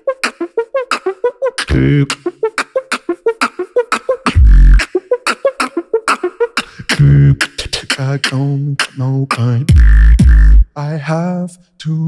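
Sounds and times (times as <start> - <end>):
beatboxing clicks and ticks: 0.0 - 10.6
deep beatboxed bass sound: 0.0 - 10.8.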